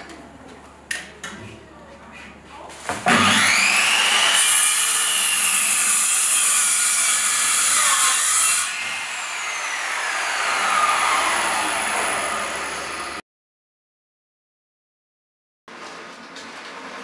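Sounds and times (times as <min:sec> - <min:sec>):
circular saw cutting wood: 0:03.1 - 0:13.2.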